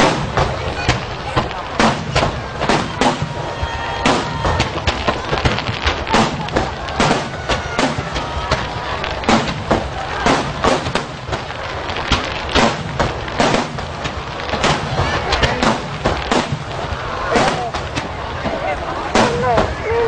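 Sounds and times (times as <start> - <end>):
firework shells booming: 0.0 - 20.0
rumble of explosions: 0.0 - 20.0.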